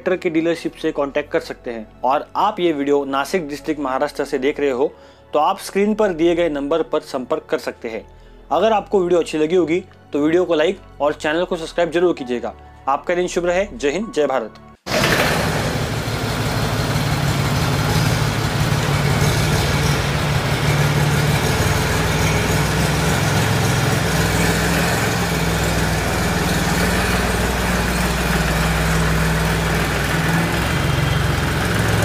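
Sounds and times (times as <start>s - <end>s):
tractor diesel engine idling: 14.9s - 32.0s.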